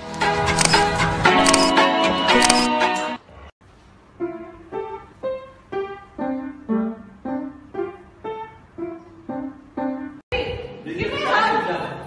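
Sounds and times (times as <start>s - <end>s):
piano melody: 4.0s - 10.2s.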